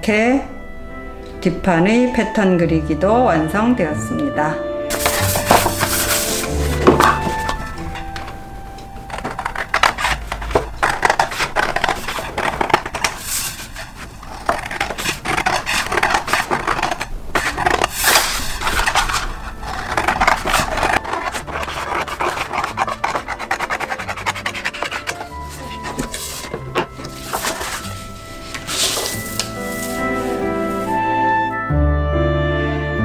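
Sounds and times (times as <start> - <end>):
scissors snipping paper: 4.9 - 8.2, 9.0 - 30.6
paper rustling: 4.9 - 31.1.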